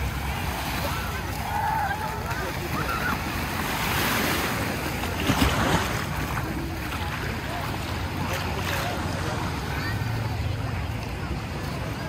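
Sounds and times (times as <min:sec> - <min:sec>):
small waves breaking on sand: 0:00.0 - 0:12.0.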